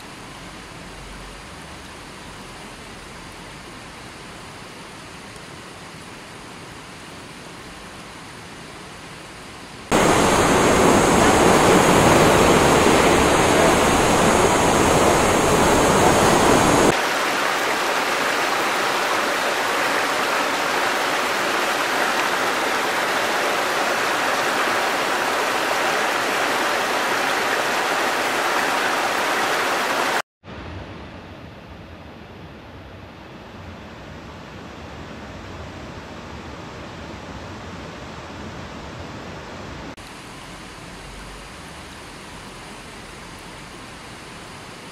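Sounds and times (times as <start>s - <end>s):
rocky stream rushing: 9.9s - 30.2s
waterfall roaring: 9.9s - 30.2s.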